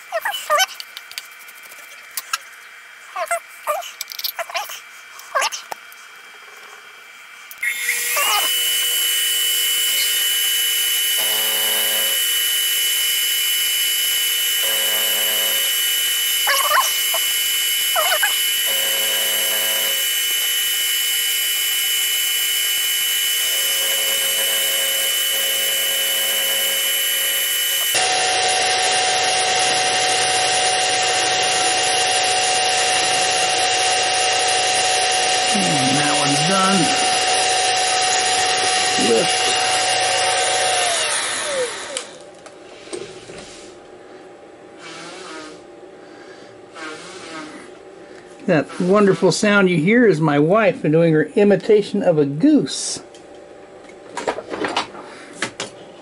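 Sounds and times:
mill spindle whining: 5.1s - 43.0s
end mill cutting aluminium: 7.6s - 42.2s.

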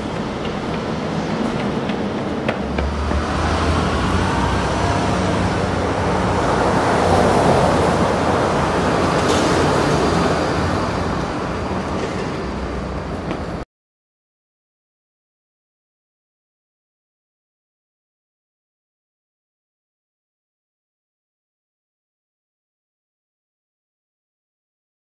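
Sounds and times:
road traffic rumble: 0.0s - 13.6s.

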